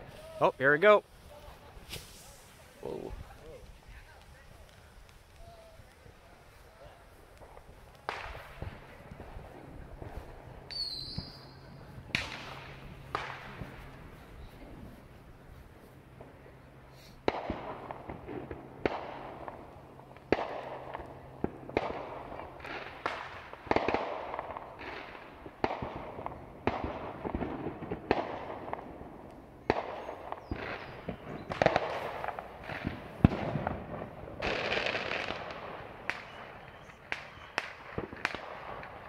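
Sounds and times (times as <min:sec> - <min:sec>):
fireworks bangs with echo: 0:05.2 - 0:14.3, 0:17.2 - 0:39.0.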